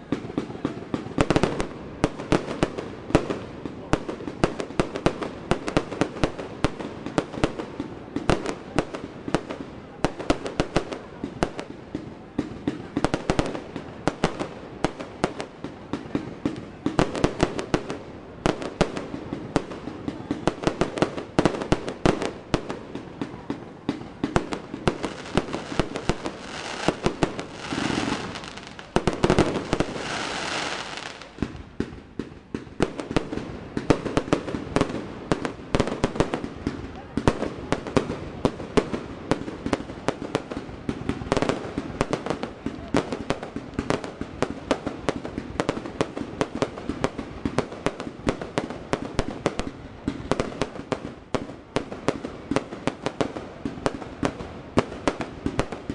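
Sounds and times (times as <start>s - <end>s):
fireworks bursts and crackling: 0.0s - 55.9s
fireworks hissing: 24.8s - 31.6s.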